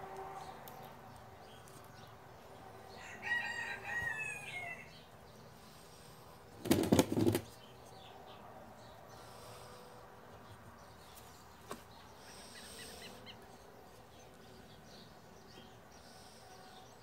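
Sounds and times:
wings flapping: 6.6s - 7.6s.

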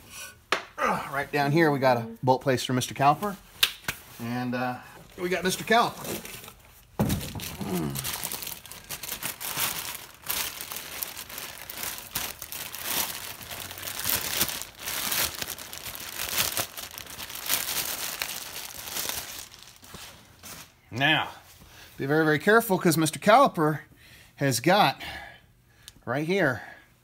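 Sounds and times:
packaging crinkling: 5.1s - 20.7s.

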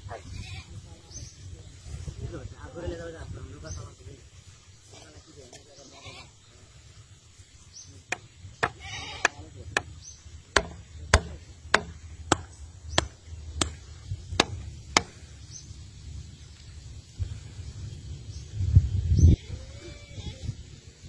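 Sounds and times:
hammer striking a post: 8.1s - 15.2s.

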